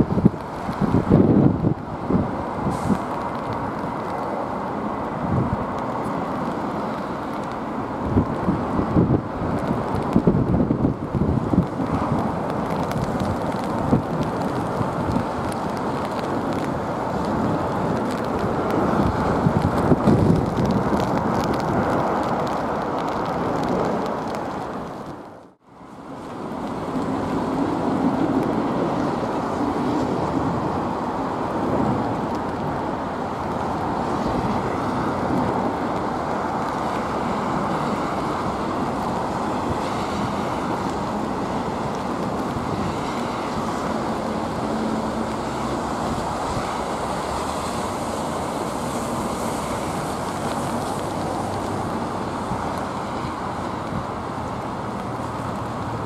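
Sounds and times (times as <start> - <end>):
gusty wind on microphone: 0.0 - 56.0.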